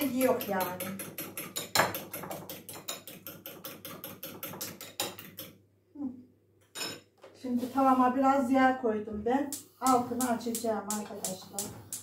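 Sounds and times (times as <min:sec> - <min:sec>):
whisk clicking against bowl: 0:00.0 - 0:05.5, 0:09.5 - 0:12.0.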